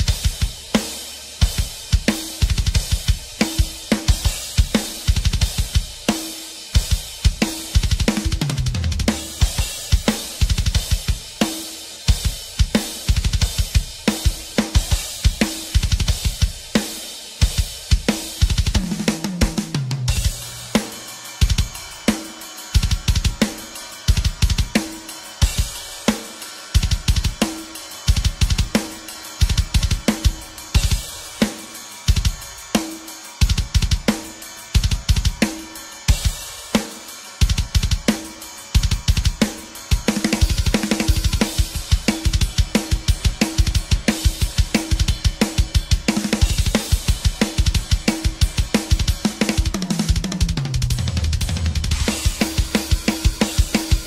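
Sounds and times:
fast drum kit beat: 0.0 - 54.0.

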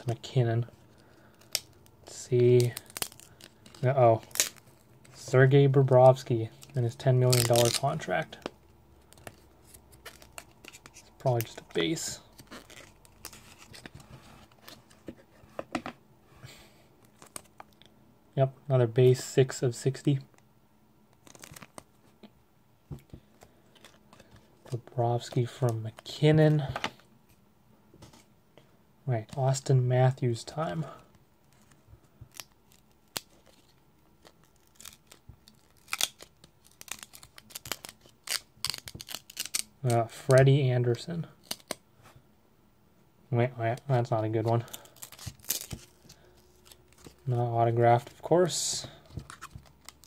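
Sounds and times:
cardboard card being peeled open: 1.1 - 5.3, 6.0 - 8.4, 9.0 - 14.9, 21.2 - 21.8, 31.5 - 39.7, 44.5 - 47.3, 49.2 - 50.0.

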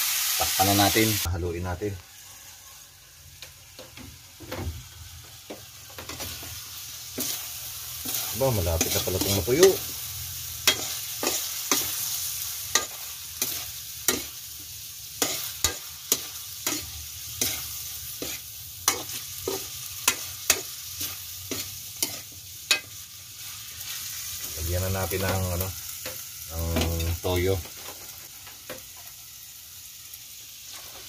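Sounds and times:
high sizzle: 0.0 - 31.0
metal spatula scraping wok: 6.0 - 14.4, 15.2 - 26.2.

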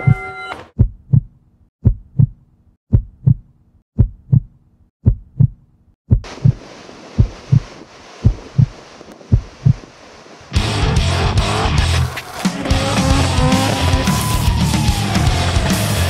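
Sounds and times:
heartbeat thumps: 0.8 - 9.9.

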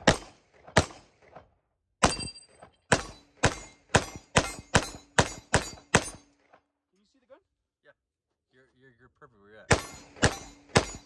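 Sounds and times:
pistol shots with echo: 0.0 - 1.2, 2.0 - 6.3, 9.7 - 11.0.

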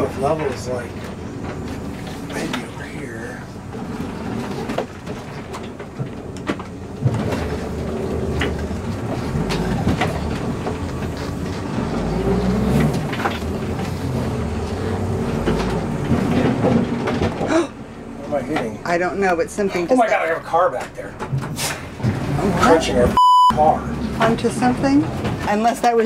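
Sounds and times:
vehicle crunching into car: 0.0 - 19.4
bus body knocking and rattling: 0.0 - 26.0
bus engine running: 0.0 - 26.0.

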